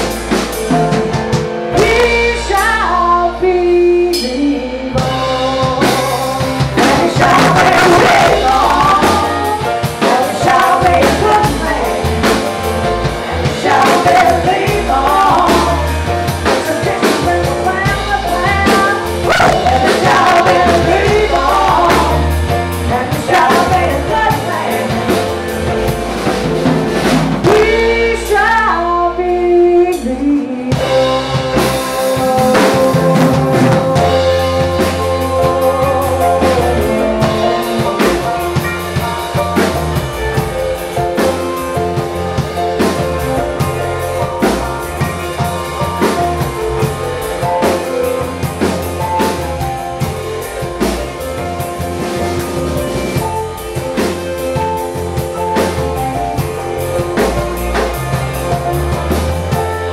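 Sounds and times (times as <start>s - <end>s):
bass guitar: 0.0s - 59.9s
drum kit: 0.0s - 59.9s
electric guitar: 0.0s - 59.9s
women singing: 1.8s - 12.4s, 13.1s - 25.5s, 27.4s - 38.7s.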